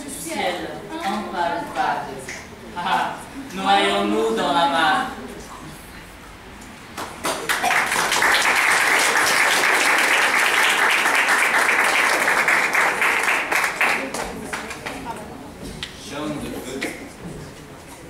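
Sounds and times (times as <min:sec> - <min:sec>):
audience applauding: 0:06.9 - 0:15.1.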